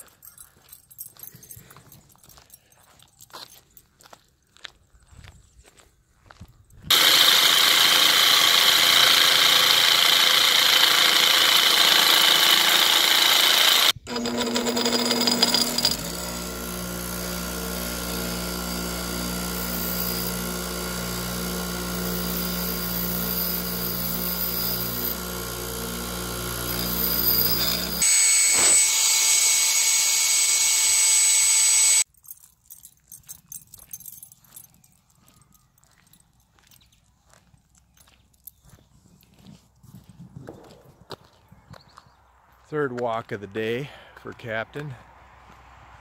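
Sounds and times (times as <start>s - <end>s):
bench grinder grinding steel: 6.9s - 32.0s
electric motor humming: 6.9s - 32.0s.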